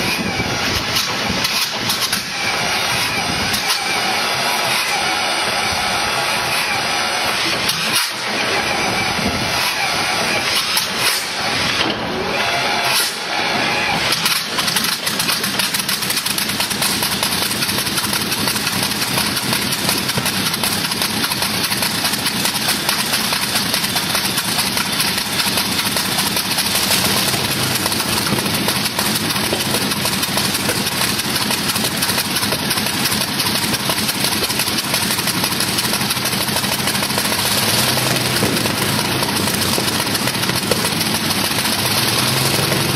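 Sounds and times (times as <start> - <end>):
aero engine running: 0.0 - 42.9.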